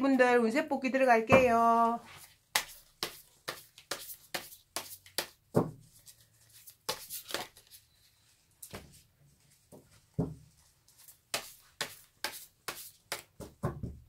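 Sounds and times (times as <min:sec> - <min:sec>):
cards being shuffled: 0:02.2 - 0:07.8.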